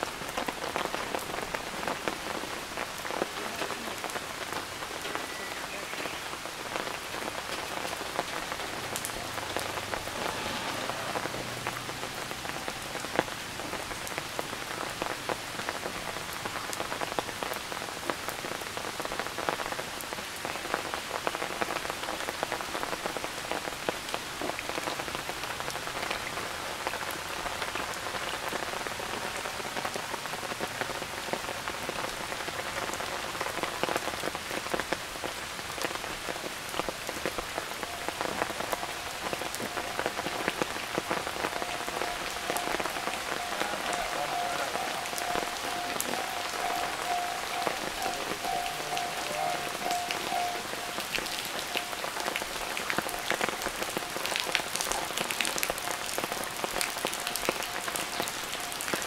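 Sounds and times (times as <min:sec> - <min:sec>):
rain pattering: 0:00.0 - 0:59.0
sharp water drips: 0:35.8 - 0:59.0.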